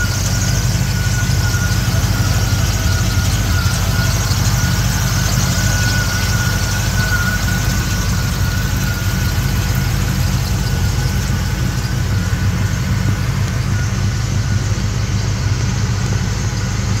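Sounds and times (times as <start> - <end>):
car engine idling: 0.0 - 17.0
faint steady whine: 0.0 - 17.0.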